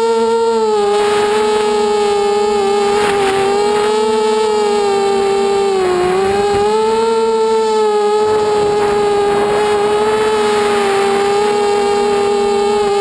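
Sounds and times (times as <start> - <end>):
quadcopter motors whining: 0.0 - 13.0
rush of air: 8.1 - 13.0.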